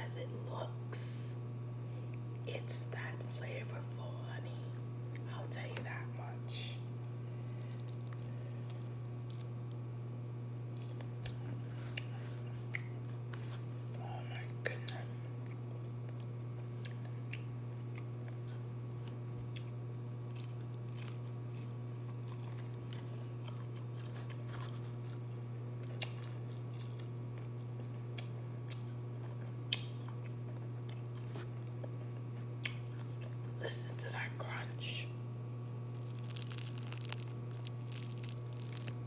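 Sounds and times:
low hum: 0.0 - 39.0
chewing crispy fried chicken: 4.7 - 5.3, 6.5 - 10.0, 10.6 - 33.6, 35.8 - 39.0.

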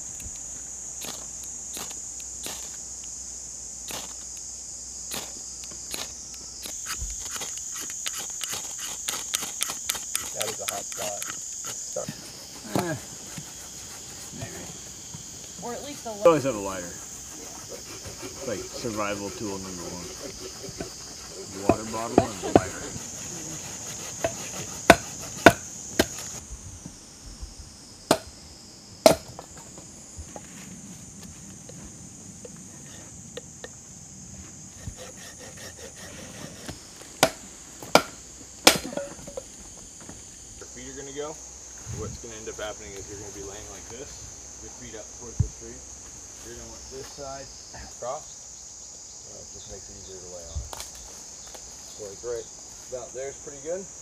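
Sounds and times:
insects droning: 0.0 - 54.0
ferro rod scraped with striker: 5.9 - 11.8
stick striking machete blade: 24.2 - 26.3, 29.1 - 29.3.

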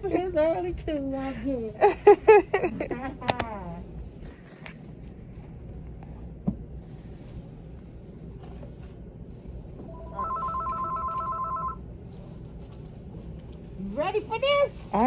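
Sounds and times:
low background hum: 0.0 - 15.0
telephone ringing: 9.8 - 11.9.

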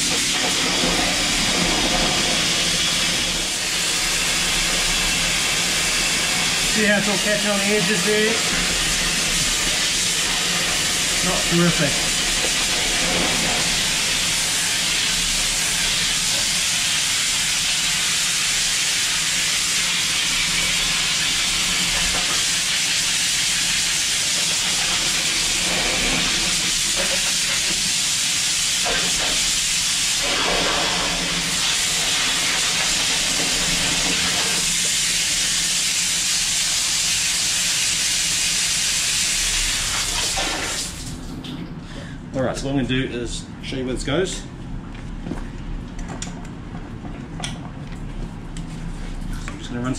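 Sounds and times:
water jet spraying concrete: 0.0 - 41.0.

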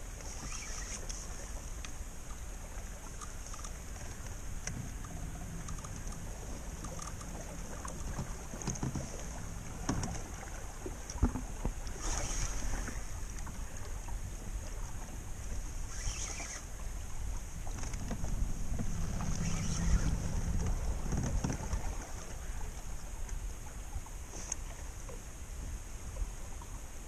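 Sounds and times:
low wind noise on microphone: 0.0 - 27.0
light clicks and knocks: 3.1 - 10.3.

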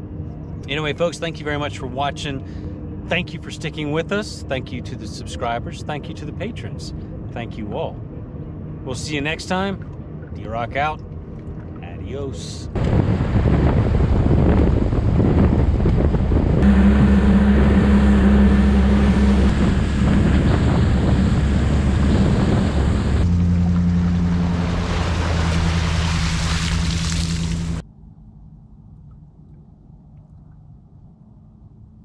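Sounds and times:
boat motor running: 0.0 - 27.8
wind noise on microphone: 12.6 - 27.8.

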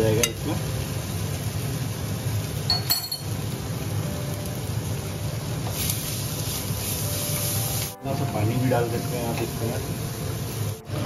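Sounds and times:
utensil clink: 2.7 - 3.3.

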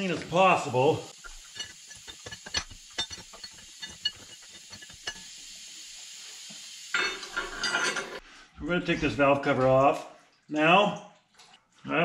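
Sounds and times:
faint steady hiss: 0.0 - 10.9
metal tools clinking: 1.2 - 5.3, 7.0 - 8.2.

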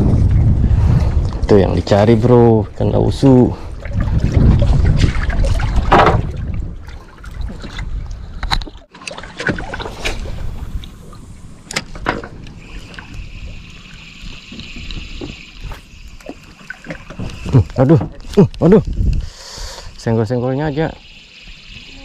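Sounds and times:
wind and water rumble: 0.0 - 22.0
sharp knocks: 5.9 - 6.3
fishing reel whirring: 19.7 - 22.0.

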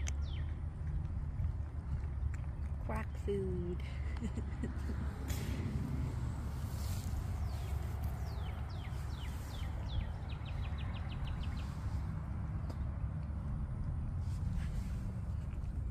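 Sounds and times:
songbird singing: 0.0 - 0.6, 6.4 - 13.0
steady low rumble: 0.0 - 15.9.

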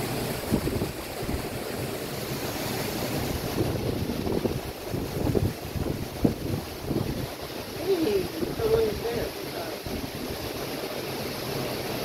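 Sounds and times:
storm waves crashing: 0.0 - 10.7
wind buffeting microphone: 0.3 - 2.0, 3.0 - 10.7.

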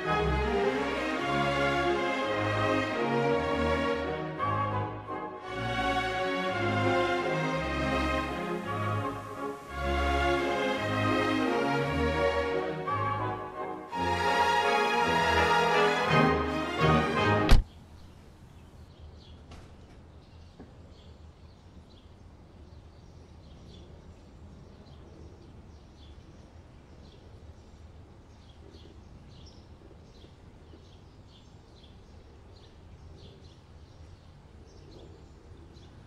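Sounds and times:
small birds chirping: 17.6 - 36.0.

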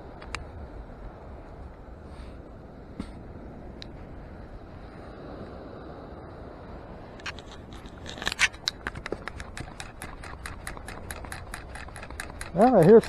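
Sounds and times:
sand scoop rattling clicks: 7.2 - 13.0
sand scoop scraping: 9.2 - 13.0.

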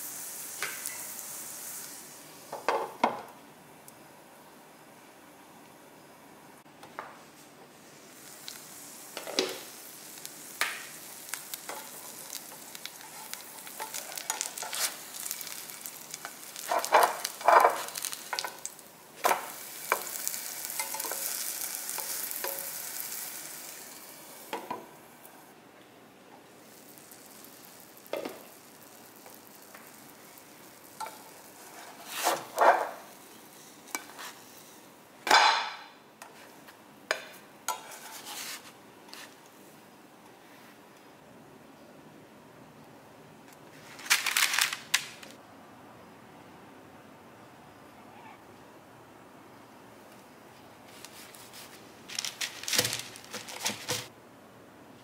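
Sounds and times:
flatbread sizzling in a frying pan: 0.0 - 3.1, 7.7 - 25.5, 26.5 - 35.0.

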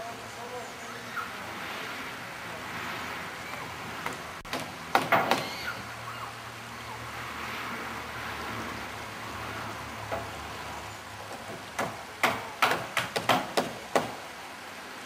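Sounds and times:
steady hiss: 0.0 - 15.0
sharp knocks: 4.0 - 5.6, 11.3 - 14.2.

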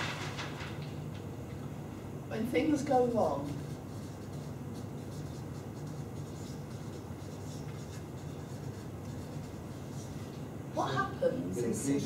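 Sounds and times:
marker pen scratching on paper: 3.5 - 10.5.

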